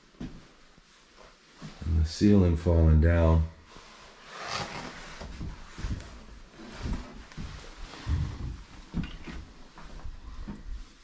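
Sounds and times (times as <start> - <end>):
slow footsteps thudding: 5.2 - 11.0.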